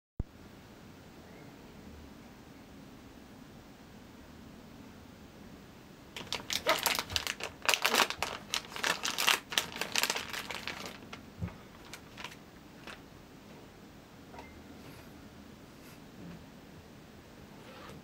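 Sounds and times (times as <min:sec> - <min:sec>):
plastic packaging crinkling: 0:06.2 - 0:13.0.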